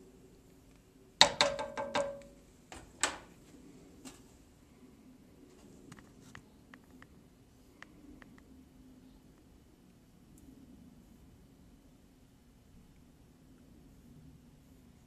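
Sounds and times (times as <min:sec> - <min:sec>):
spoon knocking on metal pot: 0:01.2 - 0:02.4.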